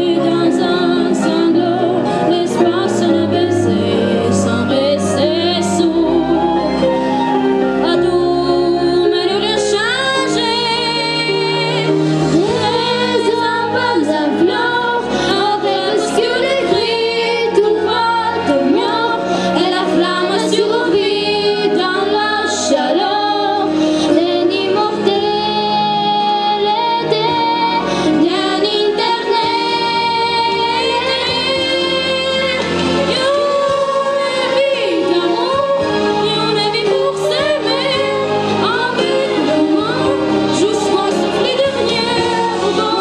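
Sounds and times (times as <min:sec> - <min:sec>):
instrumental accompaniment: 0:00.0 - 0:43.0
child singing into microphone: 0:07.8 - 0:43.0.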